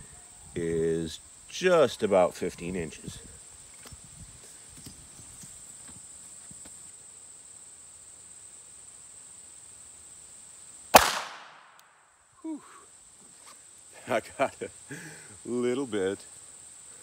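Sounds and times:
pistol shot: 10.9 - 12.0.

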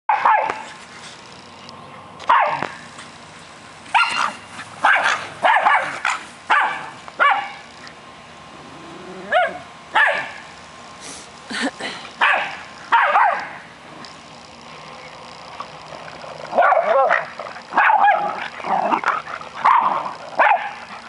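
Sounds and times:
small dogs barking: 0.1 - 0.7, 2.3 - 2.8, 3.9 - 7.8, 9.2 - 10.5, 12.2 - 13.7, 16.1 - 21.0.

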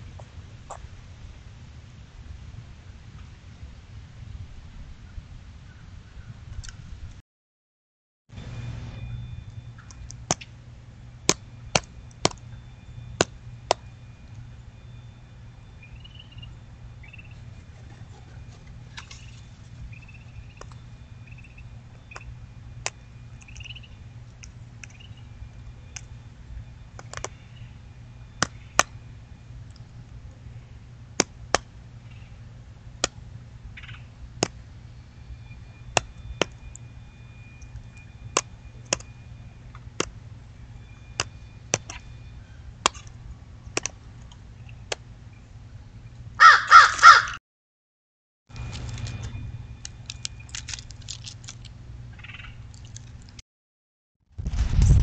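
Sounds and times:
low steady hum: 0.0 - 7.2, 8.3 - 46.5, 48.5 - 53.4
faint distant birdsong: 8.4 - 47.4
crow cawing: 46.4 - 47.4.

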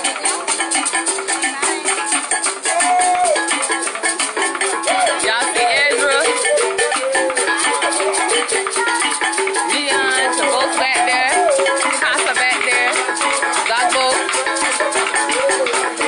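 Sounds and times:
drum beats: 0.0 - 16.0
shaker rattling: 0.0 - 16.0
person singing wavering notes: 2.5 - 3.8, 4.6 - 16.0.

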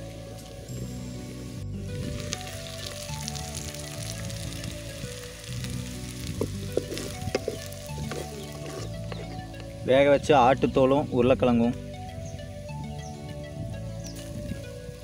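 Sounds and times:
food sizzling in hot oil: 0.0 - 9.9
soft background music: 0.0 - 15.0
wooden spatula stirring: 6.1 - 9.7.

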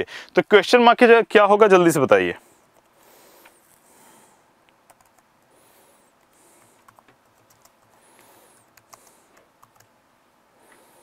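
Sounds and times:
low hiss: 0.0 - 11.0
computer keyboard clicks: 4.9 - 5.2, 6.7 - 8.0, 8.6 - 9.9.

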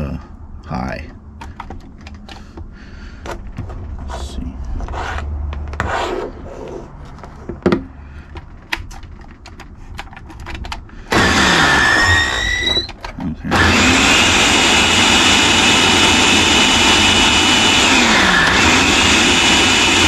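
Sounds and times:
blender motor whining: 11.1 - 20.0.

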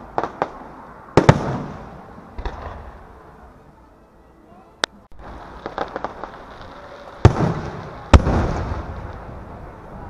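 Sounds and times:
small crackling firework pops: 0.1 - 0.6, 5.3 - 9.3
rolling echo: 5.6 - 9.8
loud firework shell bursts: 7.2 - 9.2.

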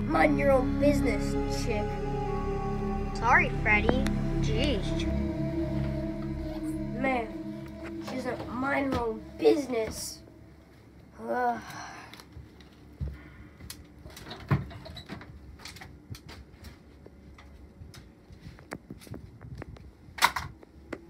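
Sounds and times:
brief vocal sound: 0.7 - 9.5.

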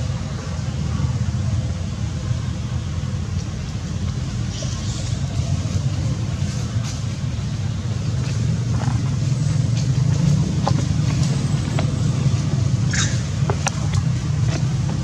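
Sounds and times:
engine rumbling: 0.0 - 15.0.

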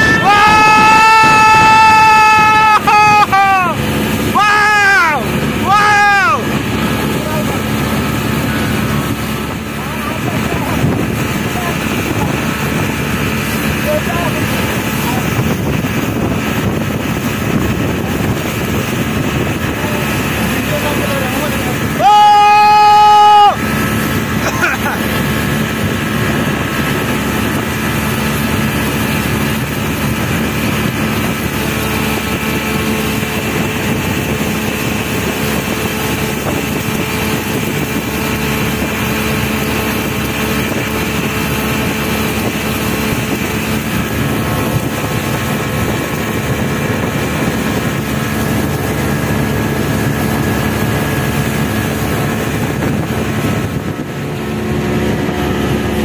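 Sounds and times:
outboard motor running: 0.0 - 56.0
rushing water and wind: 0.0 - 56.0.

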